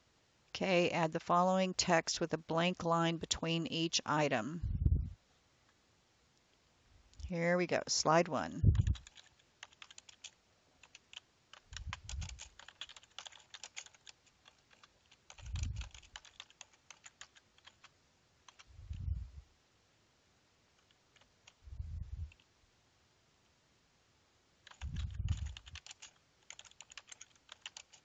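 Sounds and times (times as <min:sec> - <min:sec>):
short low thumps: 0:04.6 - 0:05.2, 0:08.6 - 0:09.0.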